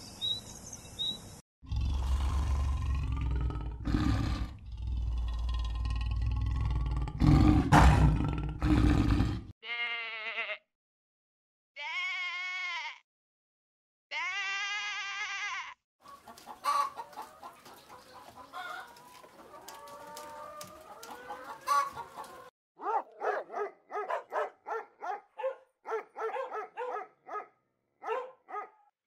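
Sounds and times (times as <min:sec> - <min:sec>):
sheep bleating: 0:09.6 - 0:10.7, 0:11.8 - 0:13.0, 0:14.1 - 0:15.8
chickens clucking: 0:16.0 - 0:22.5.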